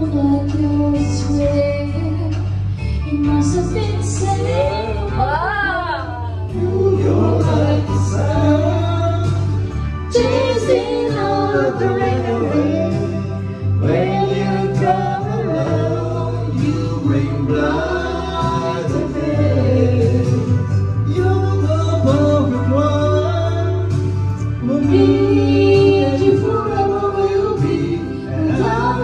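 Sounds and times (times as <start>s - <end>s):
woman singing into microphone: 0.0s - 8.8s, 10.1s - 21.6s, 24.6s - 29.0s
backing track with bass line: 0.0s - 29.0s
man singing into microphone: 6.5s - 9.5s, 10.1s - 24.0s.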